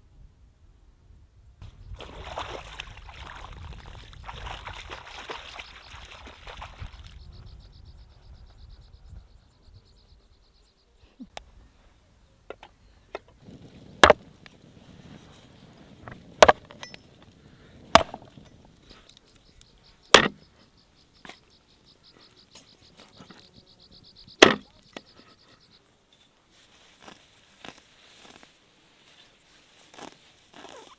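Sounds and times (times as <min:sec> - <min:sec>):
insects chirping: 0:01.6 - 0:30.9
cleaver chopping ribs on board: 0:18.0 - 0:18.2, 0:20.2 - 0:20.4, 0:24.4 - 0:24.6.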